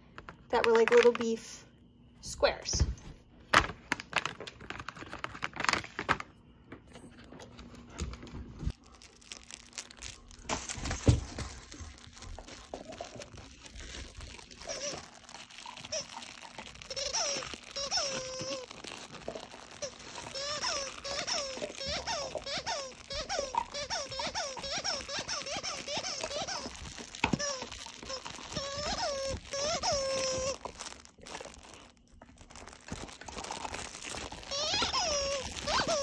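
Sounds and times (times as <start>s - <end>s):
plastic bag crinkling: 3.5s - 6.4s, 7.3s - 36.0s
dog toy squeaking: 14.5s - 19.0s, 19.8s - 31.0s, 33.6s - 36.0s.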